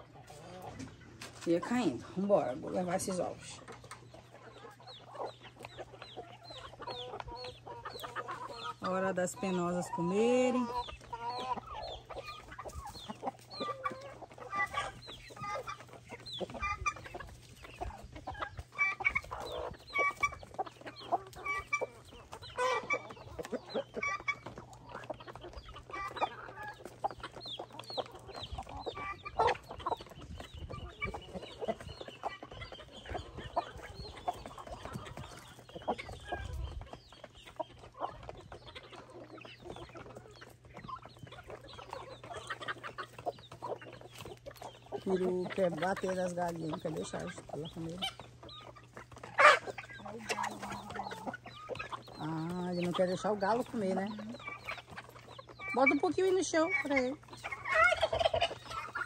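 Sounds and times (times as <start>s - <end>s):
chickens clucking: 0.0s - 59.0s.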